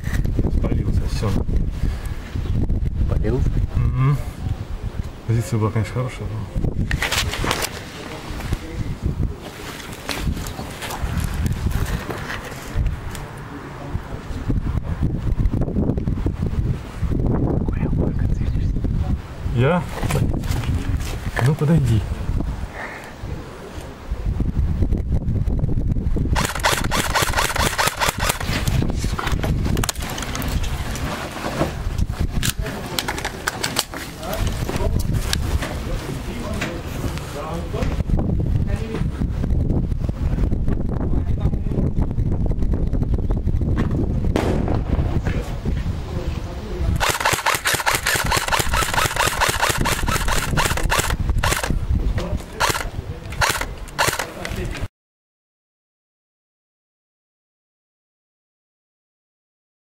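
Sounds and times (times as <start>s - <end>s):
camera handling rumble: 0.0s - 0.4s, 6.8s - 8.6s, 9.8s - 13.3s, 19.9s - 21.6s, 26.4s - 35.7s, 47.0s - 54.9s
airsoft rifle firing: 26.4s - 28.6s, 47.0s - 51.8s, 52.6s - 54.3s
gear rattling: 26.4s - 28.7s, 47.0s - 51.8s.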